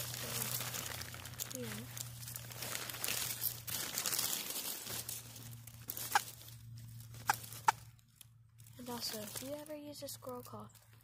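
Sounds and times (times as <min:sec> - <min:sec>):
dry leaves crunching: 0:00.0 - 0:11.0.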